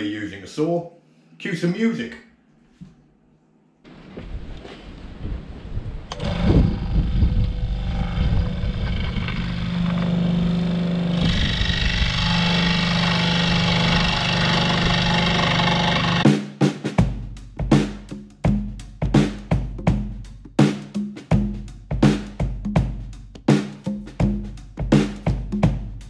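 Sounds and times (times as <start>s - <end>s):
saw cutting plywood: 6.1s - 16.3s
scroll saw motor hum: 6.1s - 16.3s.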